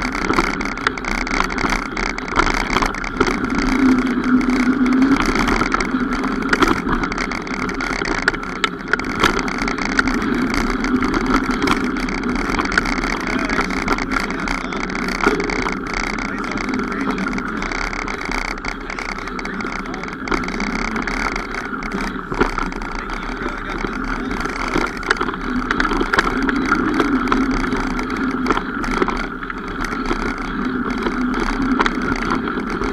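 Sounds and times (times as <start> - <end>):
bike clicks and rattles: 0.0 - 32.9
mountain bike riding on trail: 0.0 - 32.9.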